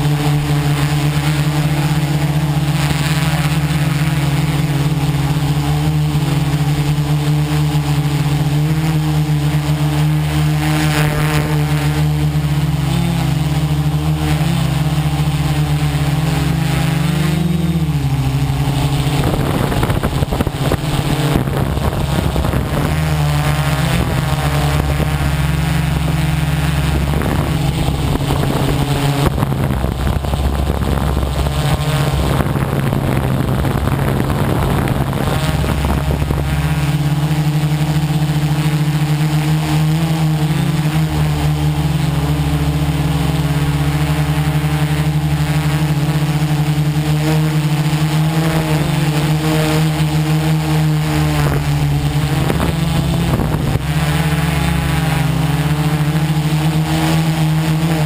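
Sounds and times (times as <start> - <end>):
quadcopter propellers buzzing: 0.0 - 58.0.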